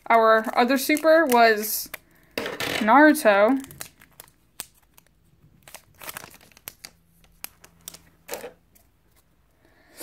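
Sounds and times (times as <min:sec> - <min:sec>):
wrapper crinkling and tearing: 0:00.0 - 0:02.2, 0:03.1 - 0:08.8.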